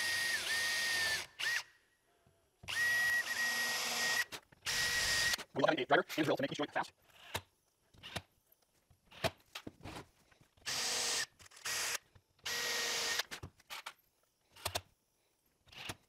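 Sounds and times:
power drill drilling into wood: 0.0 - 1.7, 2.7 - 5.4, 10.7 - 13.4.

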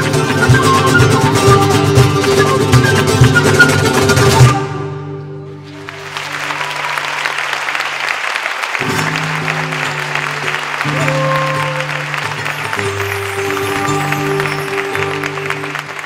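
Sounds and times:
audience applause: 5.6 - 16.0.

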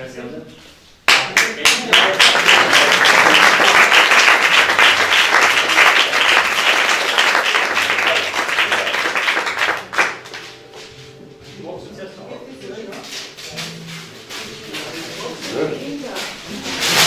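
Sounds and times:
audience applauding: 1.1 - 10.6.

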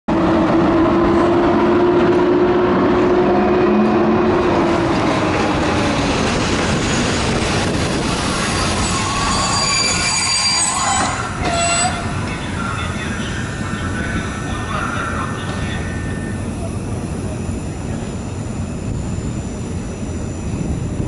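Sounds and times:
train wheels rumbling on rails: 0.1 - 21.0
high wheel squeals: 8.2 - 12.3, 15.8 - 16.6
steady tone: 12.0 - 21.0.

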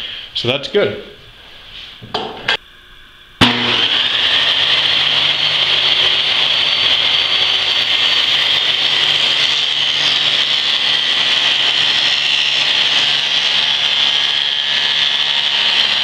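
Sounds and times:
table saw whining: 3.4 - 16.0.

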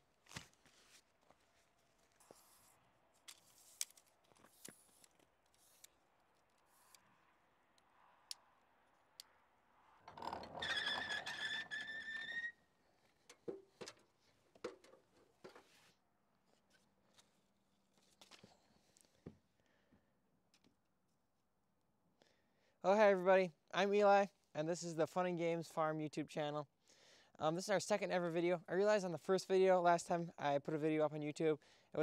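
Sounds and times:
door hinges squealing: 10.1 - 12.7.

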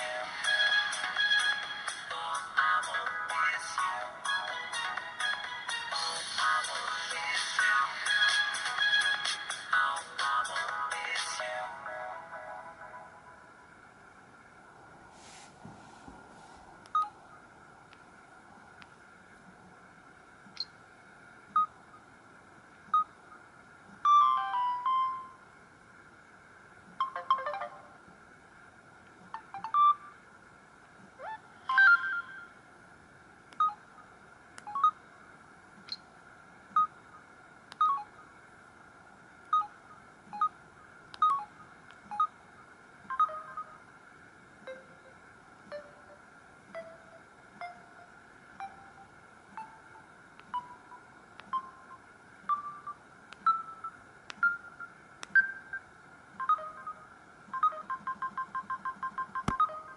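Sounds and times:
phone keypad beeps: 16.9 - 17.2, 27.0 - 27.7, 29.4 - 30.0, 33.6 - 33.8, 34.6 - 35.0, 37.8 - 38.1, 39.5 - 40.6, 41.2 - 41.5, 42.1 - 42.4, 43.1 - 43.8, 48.6 - 59.9
phone alert tone: 27.0 - 27.9, 31.2 - 32.5, 43.1 - 43.7, 56.4 - 59.9.

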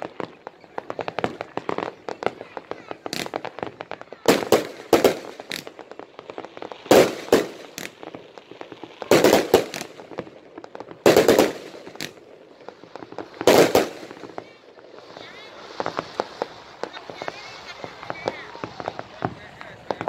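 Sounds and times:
firework bangs: 0.0 - 20.0
crackle of small pops: 4.9 - 14.6.

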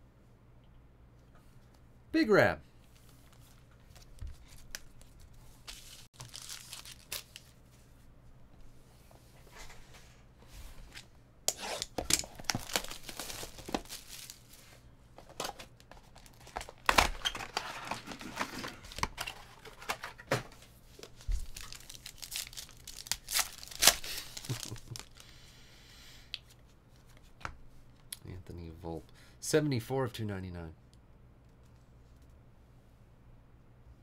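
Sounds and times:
card pack wrappers ripping: 5.7 - 7.6, 11.7 - 14.5, 21.4 - 25.2.

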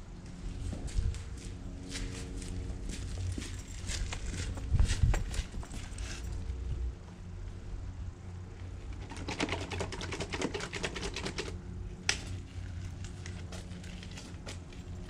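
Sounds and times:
steady low hum: 0.0 - 15.0
rapid clicking and rattling: 8.9 - 11.6.

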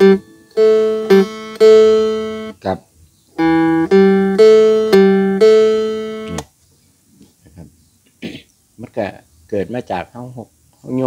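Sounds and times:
plucked lute notes: 0.0 - 2.5, 3.4 - 6.4.

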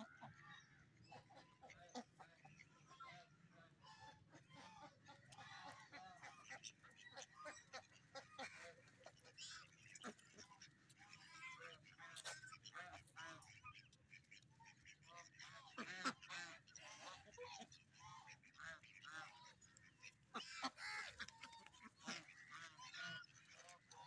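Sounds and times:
ducks quacking: 0.0 - 24.0.

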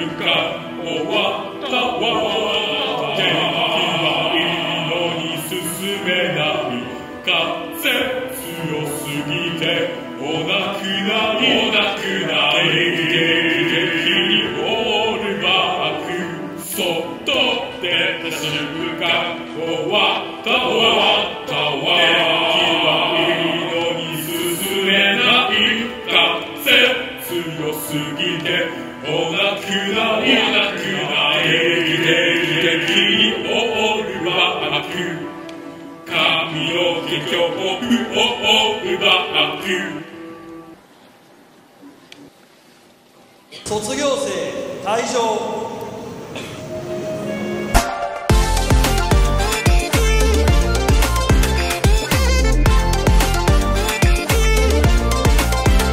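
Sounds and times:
male chorus singing: 0.0 - 40.8.

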